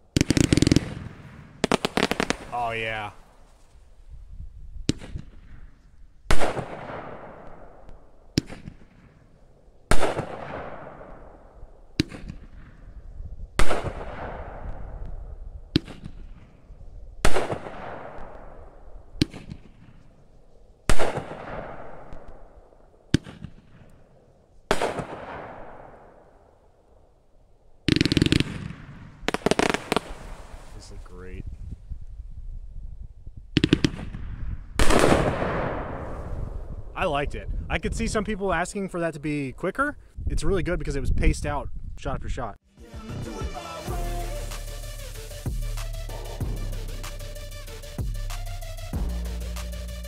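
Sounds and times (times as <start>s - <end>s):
fireworks booms with echo: 0.1s - 3.4s, 6.3s - 9.2s, 9.9s - 12.8s, 13.6s - 15.1s, 15.7s - 16.6s, 17.2s - 20.0s, 20.9s - 22.4s, 24.7s - 26.2s, 27.9s - 31.1s, 33.6s - 36.9s.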